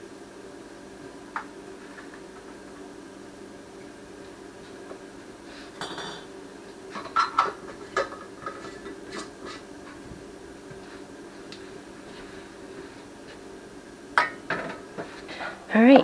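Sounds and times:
steady low hum: 0:00.0 - 0:16.0
metal pots clinking and knocking: 0:05.8 - 0:06.3.

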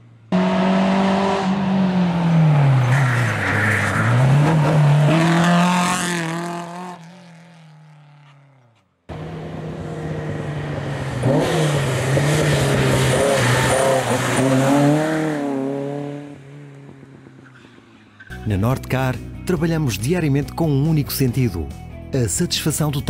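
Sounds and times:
second rally car engine revving: 0:00.3 - 0:08.5, 0:09.1 - 0:17.0
rally car engine revving: 0:00.3 - 0:18.3.

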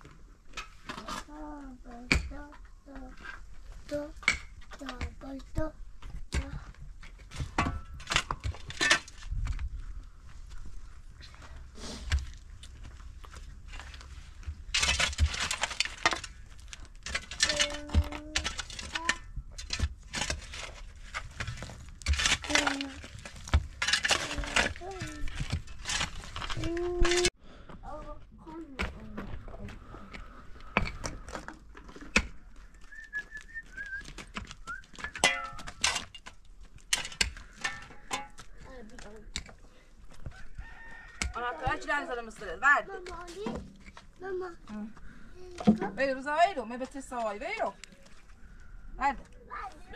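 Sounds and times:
hand tool digging stony soil: 0:11.2 - 0:27.4
shovel scraping gravel: 0:13.7 - 0:27.3.

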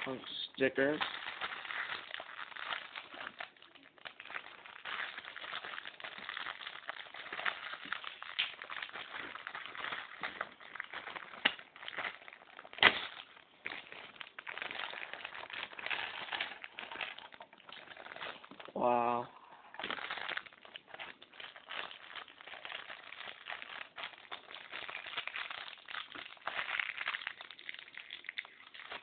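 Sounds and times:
plastic packaging crinkling: 0:00.0 - 0:29.0.

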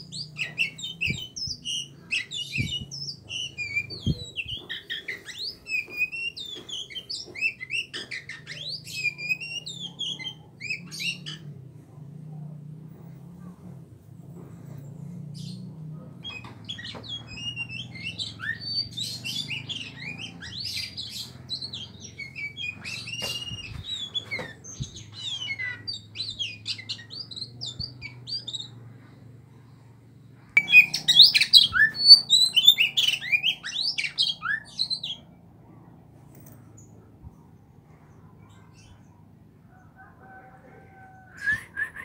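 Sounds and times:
bird singing whistled notes: 0:00.0 - 0:11.4, 0:16.3 - 0:28.7, 0:30.6 - 0:35.2
faint low hum: 0:00.0 - 0:42.0.

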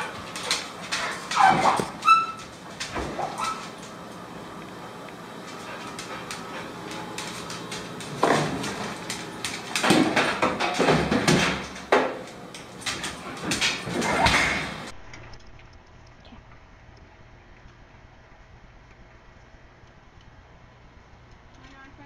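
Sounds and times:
oven door metal clattering: 0:08.0 - 0:14.9.

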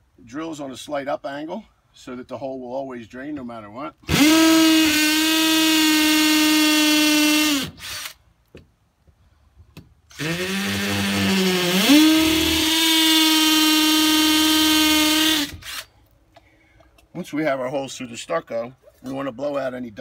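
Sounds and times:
hammer drill whining: 0:04.1 - 0:08.2, 0:10.1 - 0:15.9.

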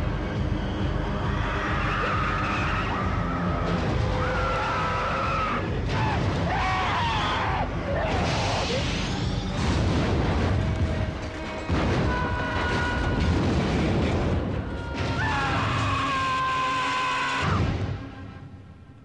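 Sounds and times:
debris crashing down: 0:08.0 - 0:16.2
explosion blast: 0:08.1 - 0:15.9.

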